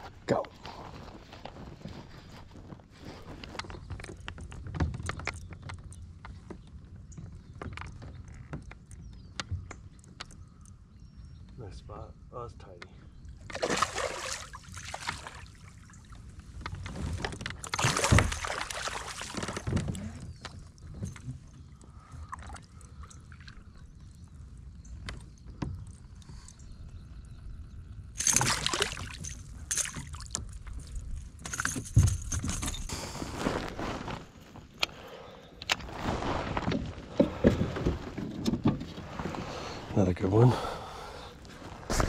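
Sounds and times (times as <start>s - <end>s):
fish splashing in water: 13.5s - 15.6s, 17.6s - 19.7s.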